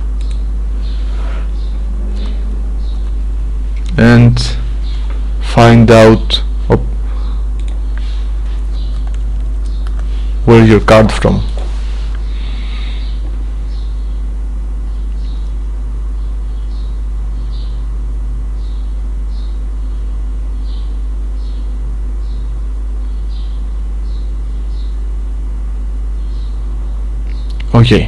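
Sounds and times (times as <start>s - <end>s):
low electrical hum: 0.0s - 28.0s
faint high ticks: 0.2s - 0.5s.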